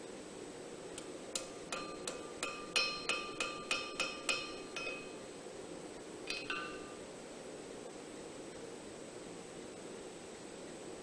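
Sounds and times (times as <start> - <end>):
hammer ringing on anvil: 1.4 - 5.2, 6.3 - 7.0.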